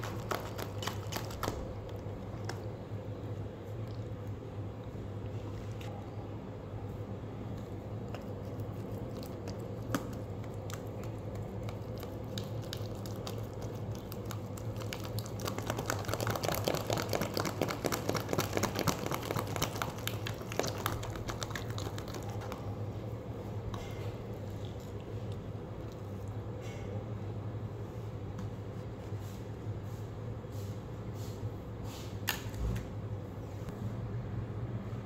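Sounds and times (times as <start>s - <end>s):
slime stirred with sticky clicks: 0.0s - 2.8s, 7.5s - 23.1s.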